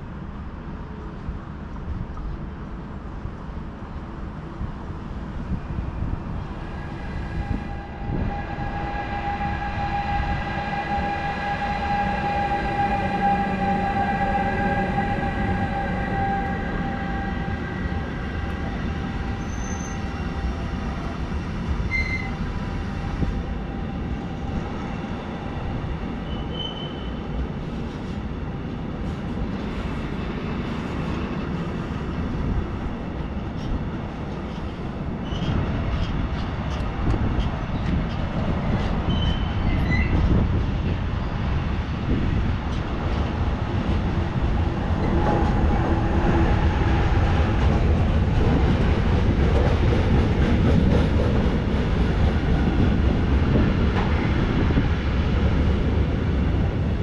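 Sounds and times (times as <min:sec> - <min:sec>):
train wheels rumbling on rail: 0:00.0 - 0:57.0
steady whining tones: 0:06.0 - 0:27.5.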